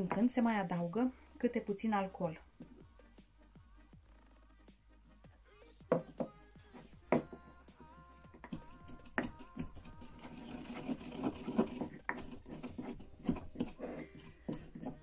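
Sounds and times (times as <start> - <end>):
pestle pounding in wooden mortar: 7.1 - 7.4, 8.4 - 15.0
rasping scrape: 8.4 - 15.0.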